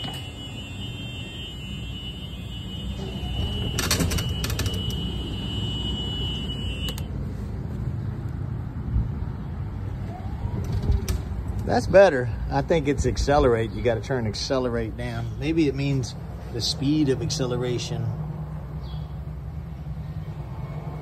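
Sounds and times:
golf cart rolling rumble: 0:00.0 - 0:06.9
reverse warning buzzer: 0:00.0 - 0:07.1
clicks: 0:03.4 - 0:05.2, 0:06.8 - 0:07.1.

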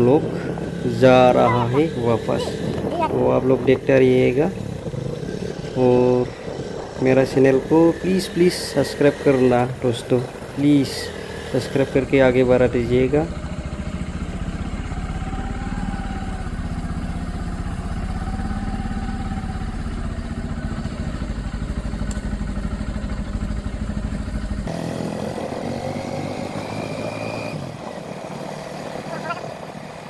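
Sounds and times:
heavy low rumble: 0:00.0 - 0:10.6
motorbike engine running: 0:00.0 - 0:30.0.

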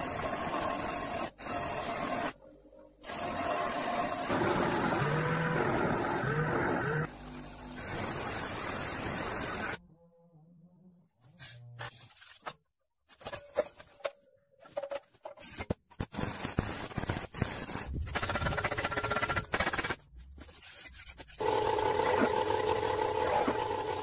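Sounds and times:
electric motor humming: 0:04.1 - 0:07.8.

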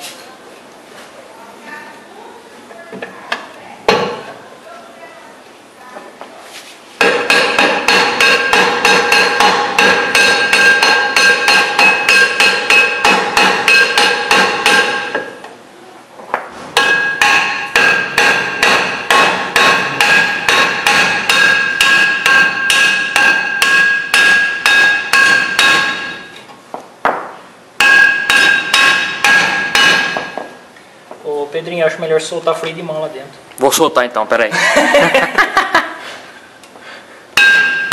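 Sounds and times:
hammer tapping on metal drum: 0:07.0 - 0:15.3, 0:16.8 - 0:26.3, 0:27.8 - 0:30.5, 0:37.4 - 0:37.9.

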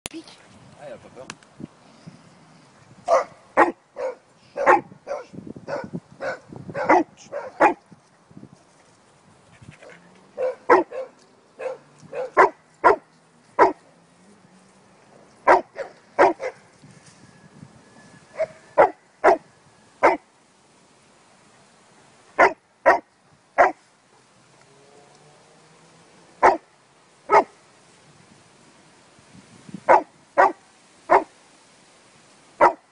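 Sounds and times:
dog barking: 0:03.1 - 0:07.8, 0:10.4 - 0:13.0, 0:13.6 - 0:13.8, 0:15.5 - 0:16.6, 0:18.4 - 0:19.4, 0:20.0 - 0:20.2, 0:22.4 - 0:23.0, 0:23.6 - 0:23.8, 0:26.4 - 0:26.6, 0:27.3 - 0:27.6, 0:29.9 - 0:31.3, 0:32.6 - 0:32.9.

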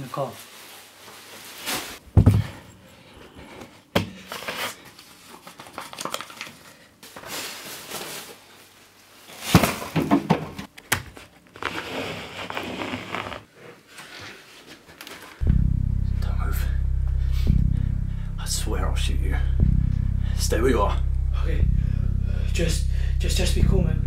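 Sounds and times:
people rustling and handling: 0:00.0 - 0:15.5.

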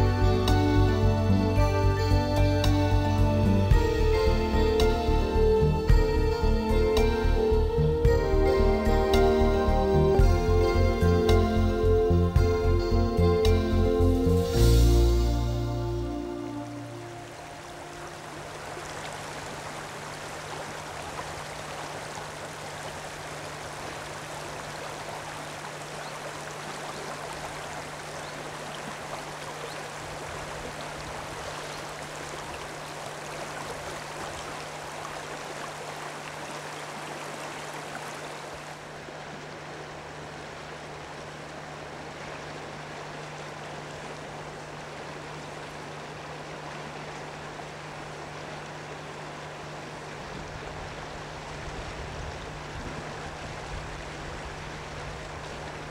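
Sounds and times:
steady low hum: 0:00.0 - 0:26.0
river water over stones: 0:14.8 - 0:55.9.

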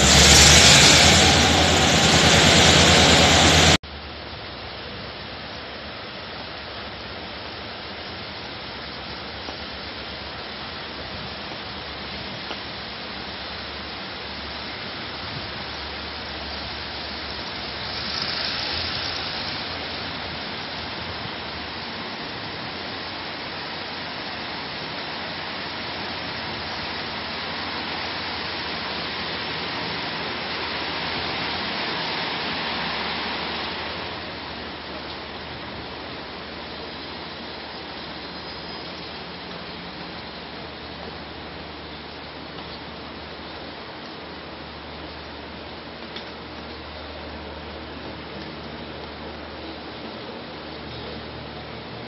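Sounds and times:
train wheels rushing on rails: 0:00.0 - 0:03.8, 0:07.8 - 0:42.7.

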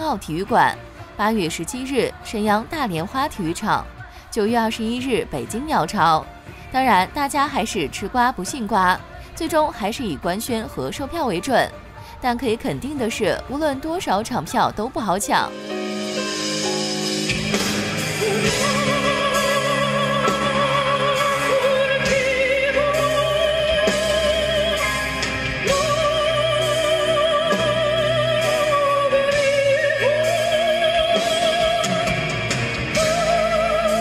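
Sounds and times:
instrumental backing: 0:15.2 - 0:34.0.

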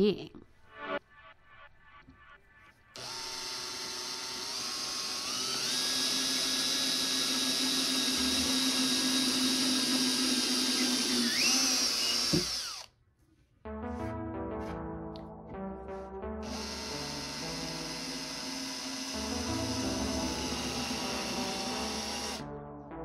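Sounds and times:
power drill motor whine: 0:03.0 - 0:12.9, 0:16.4 - 0:22.4.

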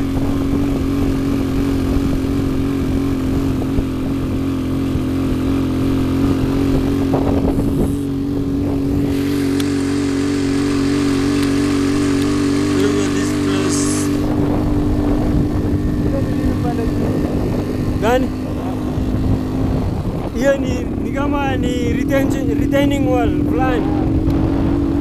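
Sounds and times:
motorcycle engine running: 0:00.0 - 0:25.0
road noise: 0:00.0 - 0:25.0
wind rushing: 0:06.0 - 0:25.0.

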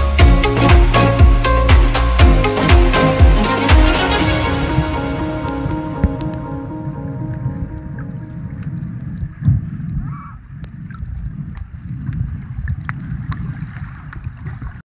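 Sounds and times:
small clicks underwater: 0:08.6 - 0:14.8.

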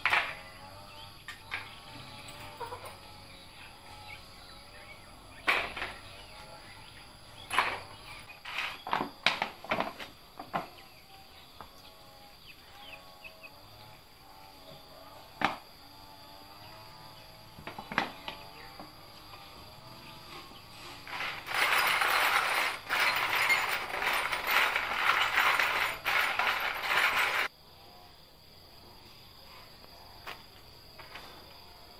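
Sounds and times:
metal parts clinking: 0:21.0 - 0:27.5.

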